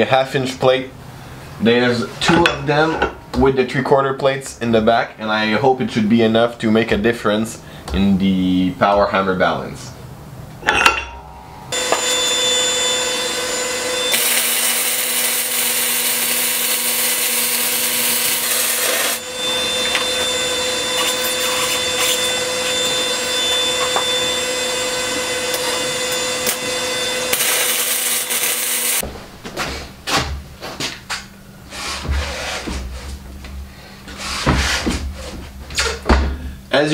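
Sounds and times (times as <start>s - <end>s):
arc welding crackling hiss: 14.1s - 19.2s, 27.3s - 29.0s.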